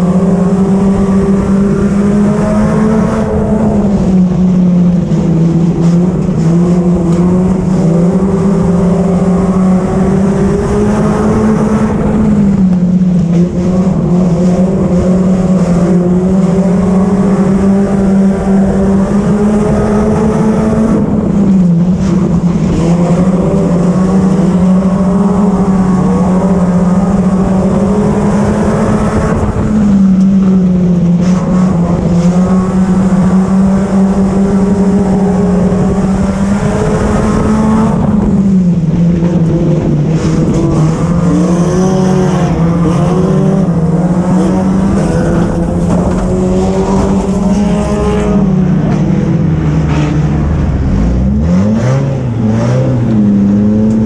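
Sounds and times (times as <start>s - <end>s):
race car engine at high revs: 0.0s - 54.0s.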